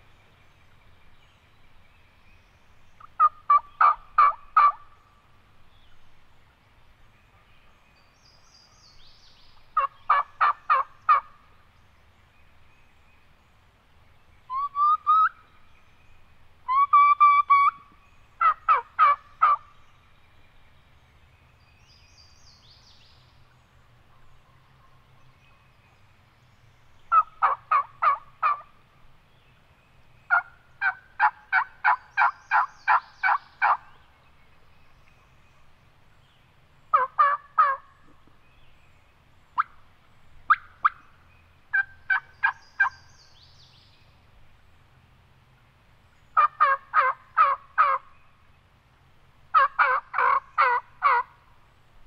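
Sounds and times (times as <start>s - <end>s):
turkey call yelps: 3.1s - 4.8s, 9.8s - 11.3s, 14.5s - 15.4s, 16.7s - 17.8s, 18.4s - 19.6s, 27.1s - 28.7s, 30.3s - 33.8s, 36.9s - 37.8s, 41.7s - 43.0s, 46.4s - 48.0s, 49.5s - 51.3s.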